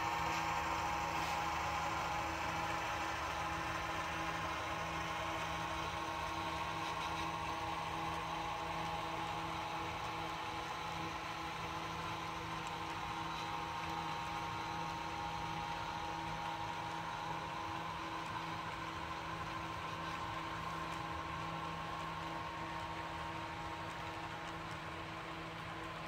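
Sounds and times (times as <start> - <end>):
model train cars rolling: 17.6 - 26.0.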